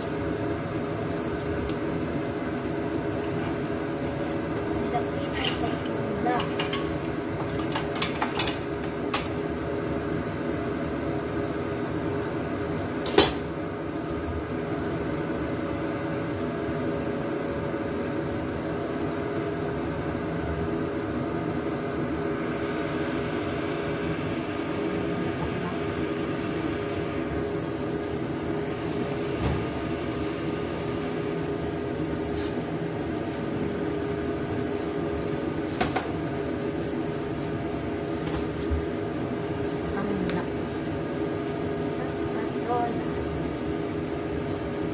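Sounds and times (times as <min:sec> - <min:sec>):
kitchen appliance hum: 0:00.0 - 0:44.9.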